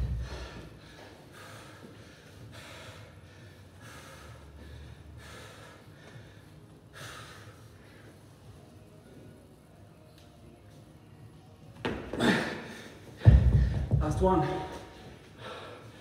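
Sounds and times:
man breathing hard: 0:00.0 - 0:08.6, 0:14.7 - 0:16.0.

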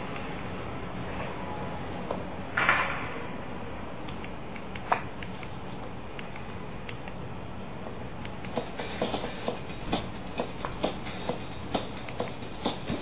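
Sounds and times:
kitten paws tapping keyboard: 0:08.2 - 0:13.0.

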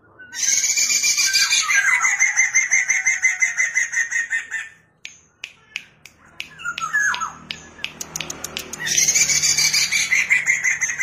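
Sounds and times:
bird singing: 0:00.0 - 0:05.0, 0:05.7 - 0:11.0
sharp clicks: 0:05.1 - 0:09.1.

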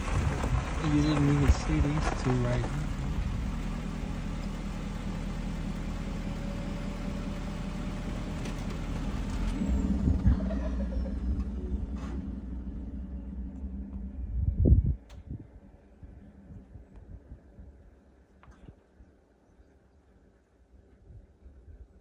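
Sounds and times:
vehicle engine idling: 0:00.0 - 0:22.0.

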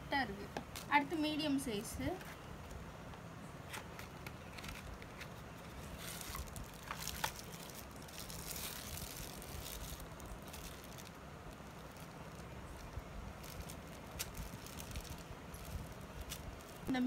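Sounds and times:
plastic packaging crinkling: 0:03.7 - 0:16.9.

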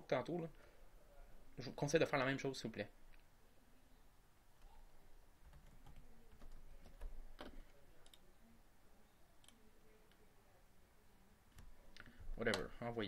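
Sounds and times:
typing on computer keyboard: 0:05.4 - 0:08.2.

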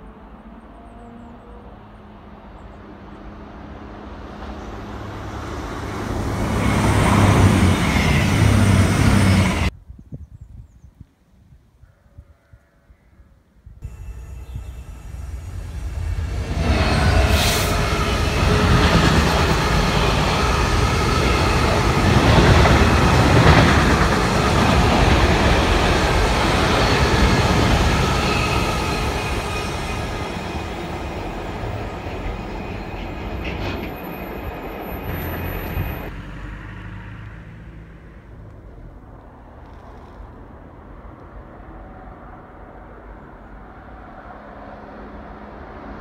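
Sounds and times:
diesel locomotive engine: 0:00.0 - 0:09.7, 0:13.8 - 0:46.0
freight wagons rolling over rails: 0:14.2 - 0:36.0.

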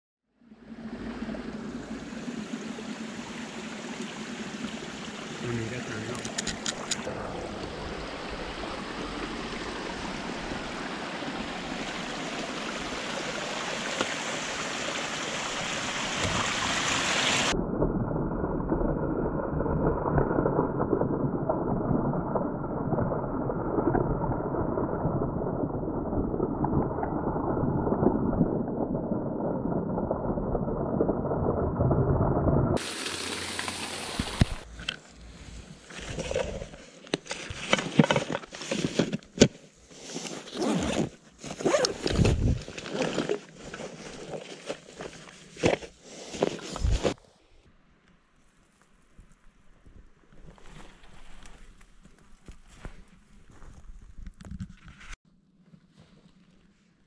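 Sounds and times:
stream and waterfall rushing: 0:07.0 - 0:17.6, 0:32.8 - 0:34.6.

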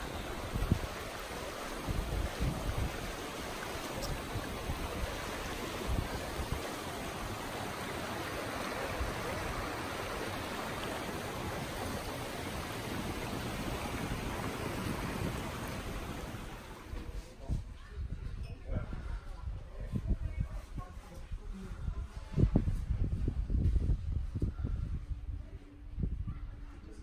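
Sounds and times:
river rushing over stones: 0:00.0 - 0:16.9.

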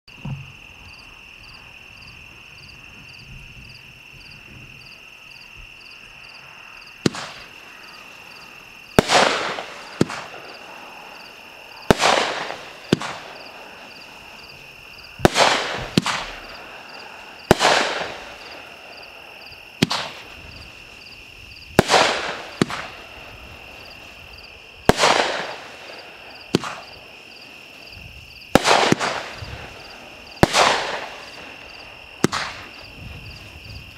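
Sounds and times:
firework launch thumps: 0:00.2 - 0:00.6, 0:07.0 - 0:07.5, 0:09.0 - 0:10.6, 0:11.9 - 0:13.4, 0:15.2 - 0:16.6, 0:19.8 - 0:20.6, 0:21.8 - 0:23.0, 0:26.5 - 0:27.0, 0:32.2 - 0:33.8
firework bangs: 0:06.9 - 0:33.9.

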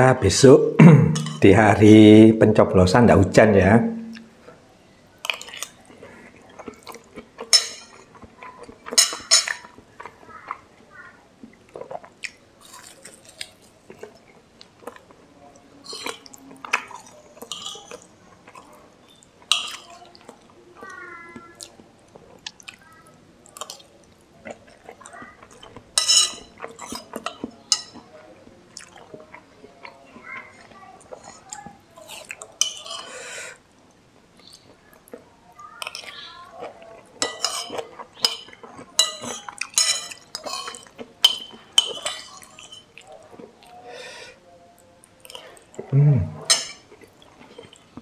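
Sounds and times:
spoon clinking on ceramic bowl: 0:01.2 - 0:01.4, 0:07.5 - 0:08.0, 0:26.0 - 0:28.0, 0:37.2 - 0:42.9, 0:46.5 - 0:46.8
person chewing: 0:05.2 - 0:10.7, 0:11.4 - 0:15.2, 0:15.8 - 0:33.5, 0:35.8 - 0:43.8, 0:45.0 - 0:48.0
wet eating sounds: 0:05.2 - 0:33.6, 0:34.4 - 0:44.3.

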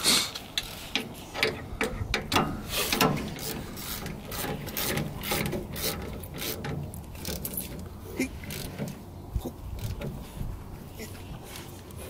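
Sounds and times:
ratchet wrench clicking: 0:00.6 - 0:07.8.

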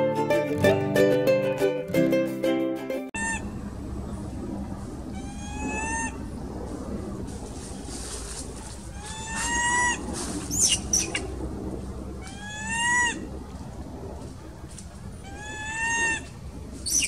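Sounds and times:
baby monkey crying: 0:03.2 - 0:03.5, 0:05.1 - 0:06.3, 0:08.9 - 0:11.3, 0:12.2 - 0:13.3, 0:15.2 - 0:17.0.

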